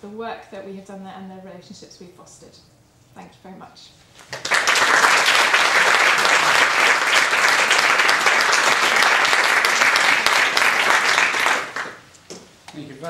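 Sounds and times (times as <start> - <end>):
audience applauding: 4.3 - 12.1.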